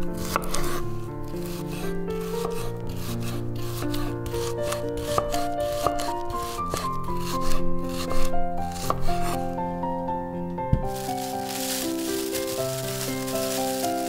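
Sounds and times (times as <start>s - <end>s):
background music with melody: 0.0s - 14.0s
scraping during food preparation: 0.2s - 9.4s, 10.9s - 14.0s.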